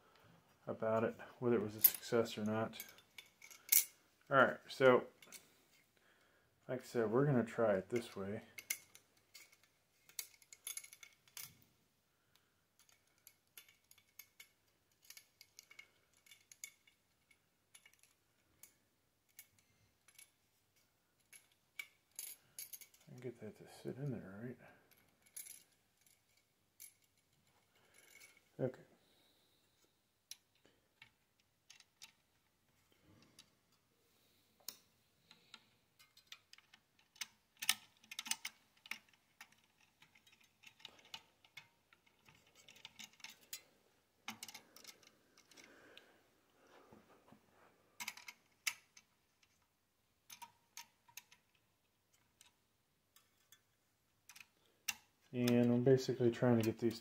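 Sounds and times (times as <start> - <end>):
faint metallic clicks and taps: 50.3 - 57.0.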